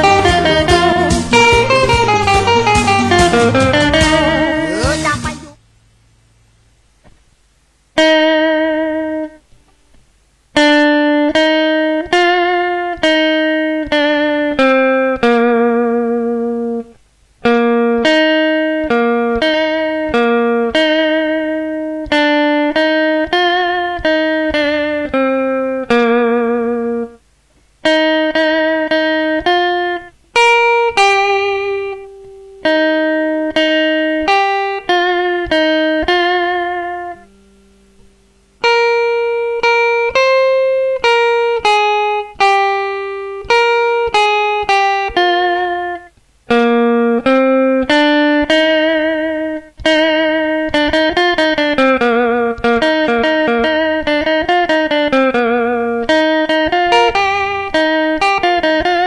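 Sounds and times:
electric guitar solo: 0.0s - 5.6s, 8.0s - 9.5s, 10.6s - 27.2s, 27.8s - 59.0s.

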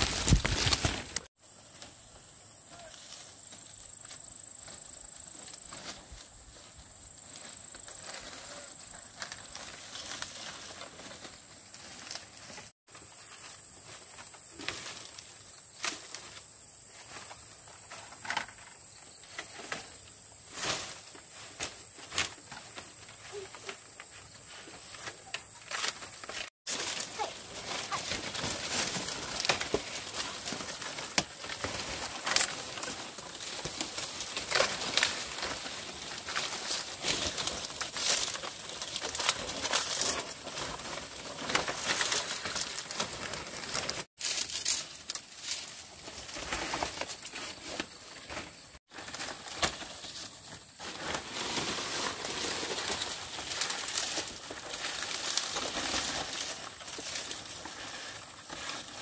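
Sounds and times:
dry thatch rustling and crackling: 0.0s - 59.0s.

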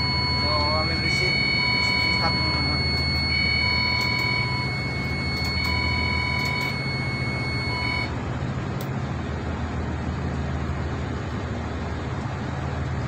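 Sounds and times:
pulsing alarm buzzer: 0.0s - 8.1s
low machinery hum: 0.0s - 13.0s.

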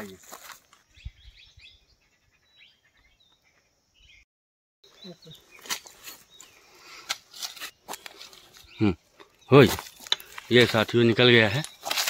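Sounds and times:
dry leaves and cloth rustling: 0.0s - 0.9s, 5.4s - 8.9s, 9.5s - 12.0s
faint bird chirps: 0.8s - 4.3s, 4.9s - 7.1s.

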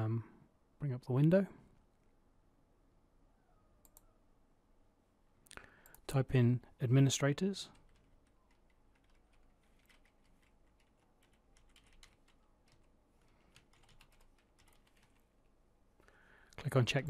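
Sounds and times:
keyboard typing: 7.7s - 15.4s.

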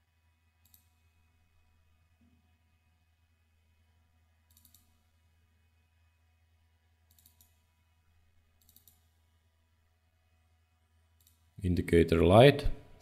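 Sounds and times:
steady low hum: 0.0s - 13.0s
computer mouse clicks: 0.6s - 1.0s, 4.5s - 5.0s, 7.0s - 7.6s, 8.6s - 9.1s, 11.2s - 11.5s.

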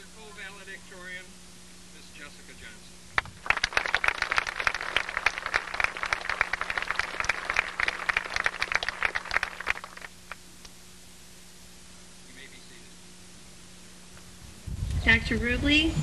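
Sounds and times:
audience applauding: 3.2s - 10.4s.

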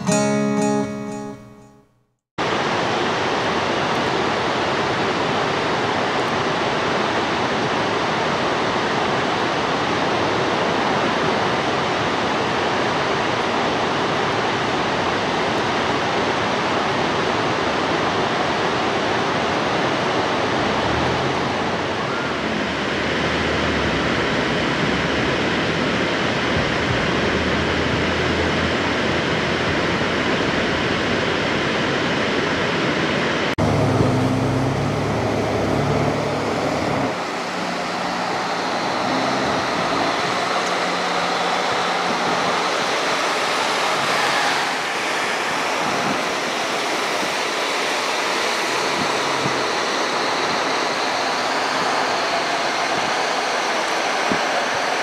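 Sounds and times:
waterfall rushing: 2.4s - 55.0s
car road noise: 20.2s - 30.9s, 33.4s - 47.0s.

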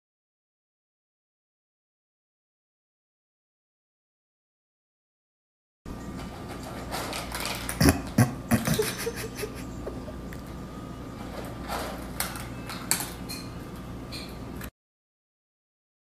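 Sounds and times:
cat crunching dry food: 6.3s - 9.2s, 11.2s - 13.2s.

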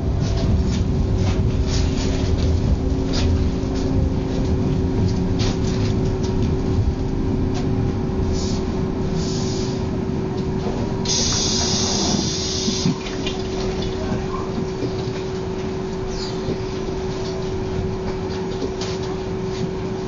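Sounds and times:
tram rumble with electric hum: 0.0s - 20.0s
loud hiss: 11.1s - 13.0s.

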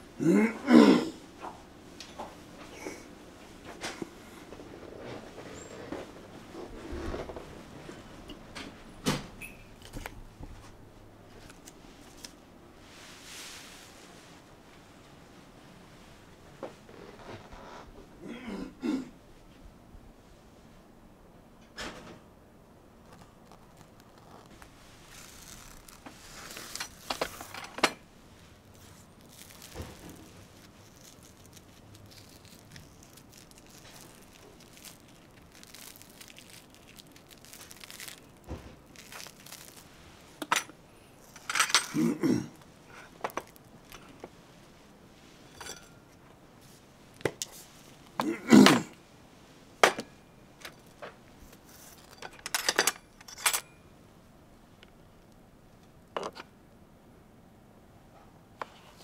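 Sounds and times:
bread crusts tearing: 23.0s - 27.6s, 28.5s - 40.4s
knife and dishes clinking: 45.5s - 46.1s.

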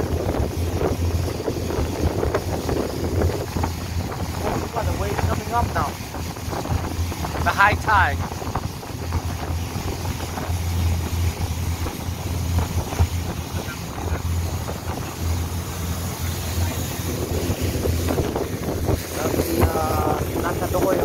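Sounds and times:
boat engine droning: 0.0s - 21.0s
water rushing and splashing: 0.0s - 21.0s
wind buffeting microphone: 0.0s - 21.0s.

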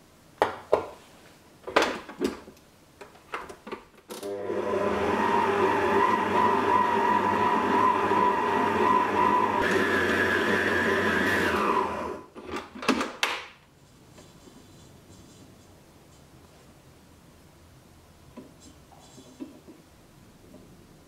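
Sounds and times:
stand mixer motor humming: 4.3s - 12.2s.

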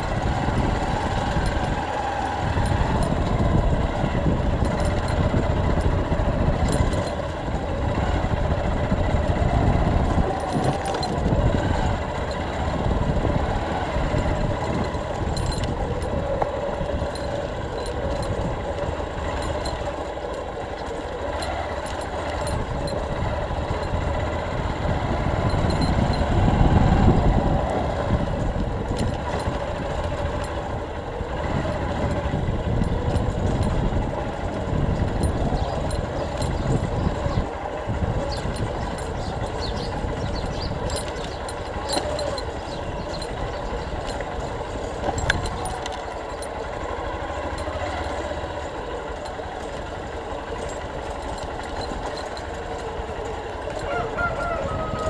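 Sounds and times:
light rattles: 0.0s - 55.0s
motorcycle engine running: 0.0s - 55.0s.

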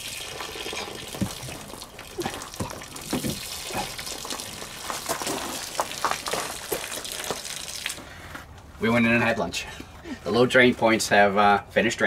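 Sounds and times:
water rushing from drain: 0.0s - 8.1s
water spattering: 0.0s - 8.2s.

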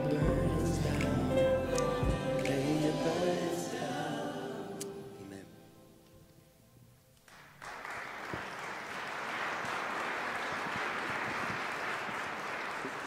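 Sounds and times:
congregation applauding: 7.2s - 13.0s.

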